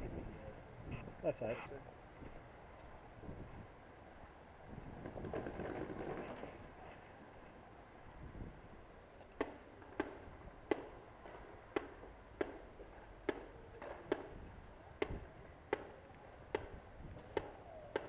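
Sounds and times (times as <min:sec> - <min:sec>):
paintball marker shots popping: 0:11.7 - 0:12.6, 0:15.0 - 0:18.0.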